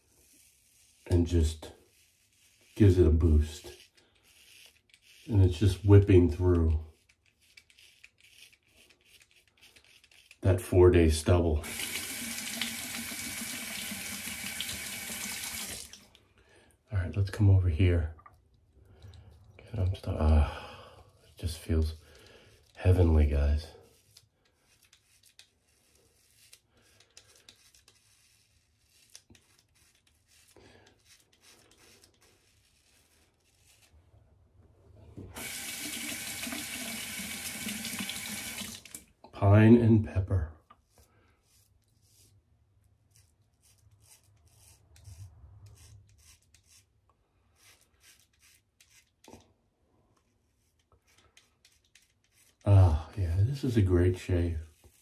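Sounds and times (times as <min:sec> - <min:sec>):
razor cutting stubble: 0:00.2 - 0:15.8, 0:21.4 - 0:33.9, 0:43.1 - 0:46.9, 0:47.6 - 0:49.4, 0:50.5 - 0:55.0.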